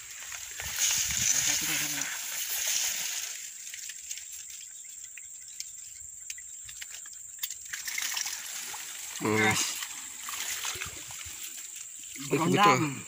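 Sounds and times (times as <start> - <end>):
faint clicks and rustles: 0.0 - 8.9.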